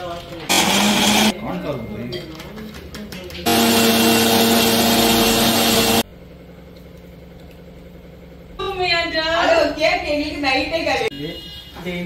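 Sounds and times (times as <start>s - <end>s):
electric motor whine: 0.5s - 1.3s, 3.5s - 6.0s.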